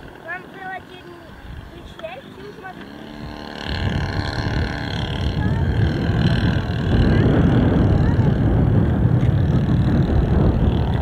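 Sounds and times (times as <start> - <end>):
model airplane motor flying past: 0.0 - 11.0
wind buffeting microphone: 0.0 - 11.0.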